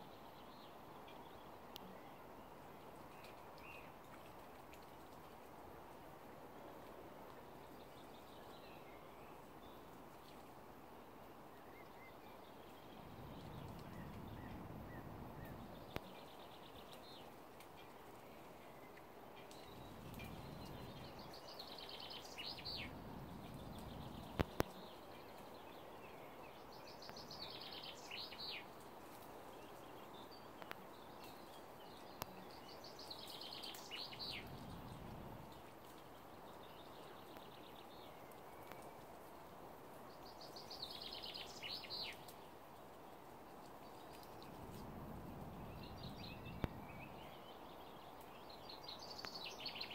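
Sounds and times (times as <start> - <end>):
small songbird singing: 11.6 - 17.9, 18.9 - 28.8, 29.7 - 35.5, 40.2 - 42.3, 44.1 - 49.9
faint low rumble: 12.2 - 17.2, 18.5 - 26.7, 33.6 - 38.1, 43.9 - 48.8.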